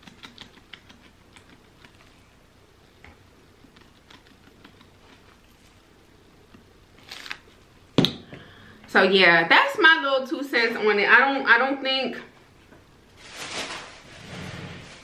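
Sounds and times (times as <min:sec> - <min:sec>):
spice shaker ticks and patter: 0:00.0 - 0:02.2, 0:03.6 - 0:05.5.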